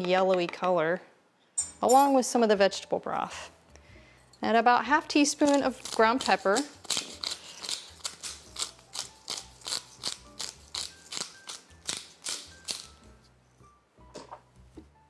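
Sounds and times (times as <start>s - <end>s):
pepper mill grinding: 5.1s - 13.0s.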